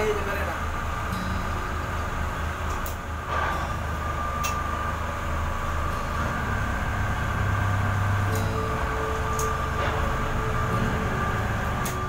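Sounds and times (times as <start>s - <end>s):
boat engines droning: 0.0s - 12.0s
high whine: 0.0s - 12.0s.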